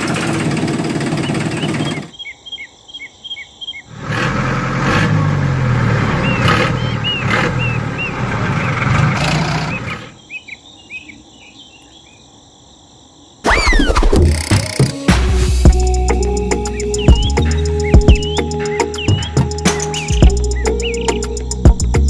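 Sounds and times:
tractor engine running: 0.0 - 2.1
birds chirping: 0.9 - 4.0, 5.1 - 15.0, 15.7 - 22.0.

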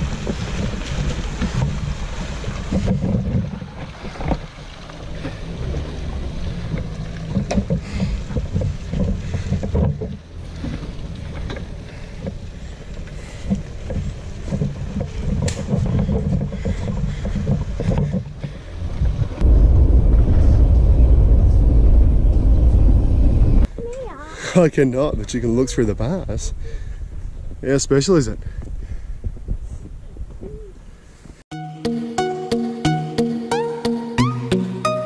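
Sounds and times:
vehicle engine working in mud: 0.0 - 23.7
wind buffeting microphone: 0.0 - 23.8, 24.7 - 31.4
wind and road noise: 0.0 - 31.5.

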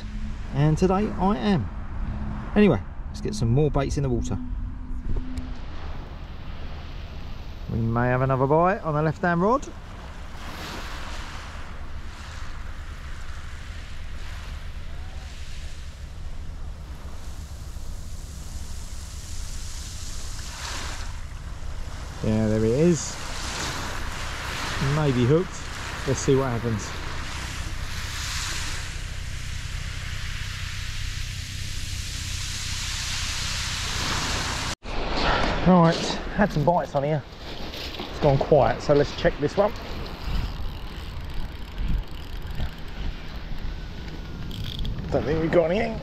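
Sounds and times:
wind rumble on microphone: 0.0 - 46.0
small waves on shingle beach: 9.4 - 15.9, 19.4 - 31.1, 32.3 - 41.2.

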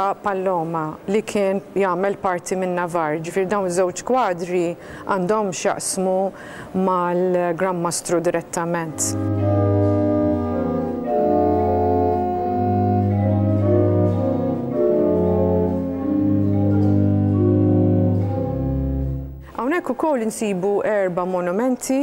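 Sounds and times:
organ music with sustained chords: 8.9 - 19.5.

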